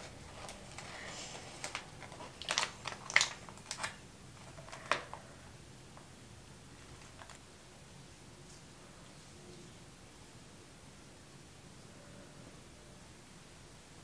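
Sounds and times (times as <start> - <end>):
packet crinkling and tearing: 0.3 - 5.2.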